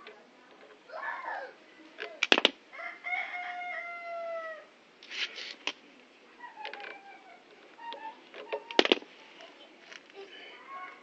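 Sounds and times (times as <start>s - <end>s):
rooster crowing: 2.7s - 4.7s.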